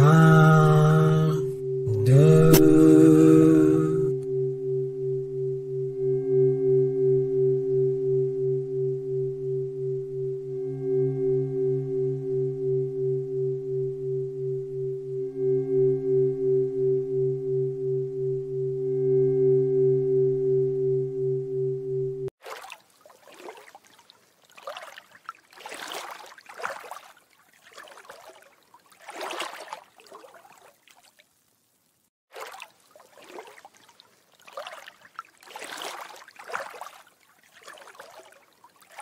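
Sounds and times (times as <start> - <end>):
high ringing tone: 0.0 - 22.3
low meditation drone: 0.0 - 22.3.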